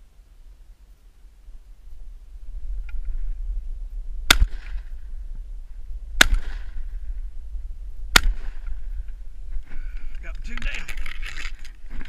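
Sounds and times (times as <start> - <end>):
shotgun shots: 4.3 - 4.9, 6.2 - 6.8, 8.1 - 8.7.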